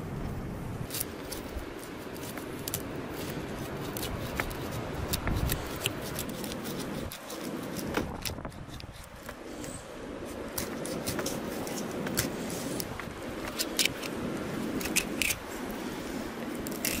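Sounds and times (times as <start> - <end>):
knife cutting through fish: 0.9 - 9.3, 10.5 - 12.9, 16.6 - 17.0.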